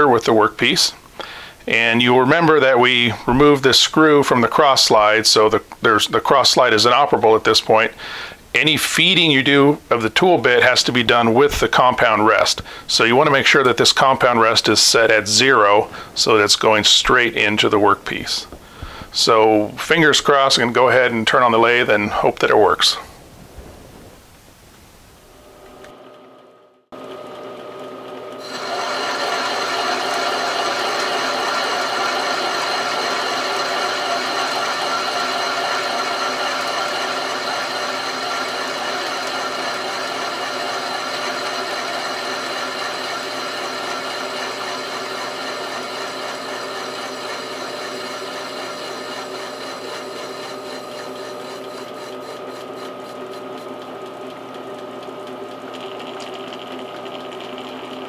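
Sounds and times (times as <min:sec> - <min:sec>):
metal lathe whirring: 0:25.4 - 0:58.0
tool bit cutting metal: 0:28.4 - 0:53.8.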